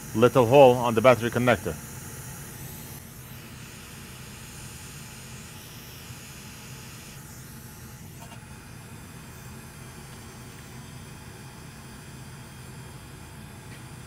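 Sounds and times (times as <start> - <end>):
hot air station blowing: 0.0 - 14.0.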